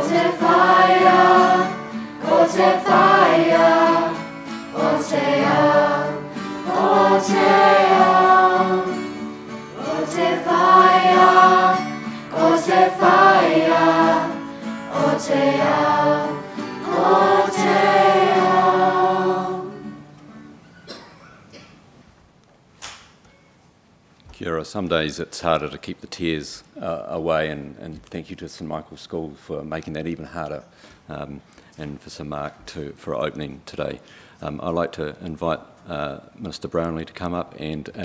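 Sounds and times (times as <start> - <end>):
children's choir singing: 0.0 - 20.0
acoustic guitar: 0.0 - 21.9.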